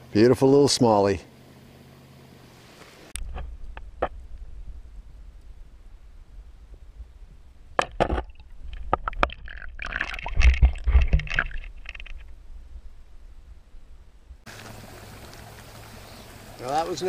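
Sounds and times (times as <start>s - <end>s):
low underwater rumble: 3.2s - 16.5s
muffled splashing and thumping: 6.7s - 12.4s
sharp clicks and knocks: 7.8s - 9.4s.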